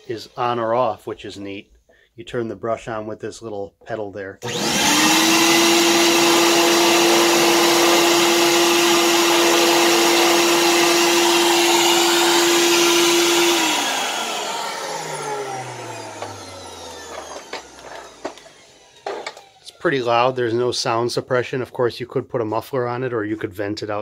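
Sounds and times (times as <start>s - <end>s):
motor winding down: 4.4s - 20.3s
vacuum motor whining: 4.4s - 20.3s.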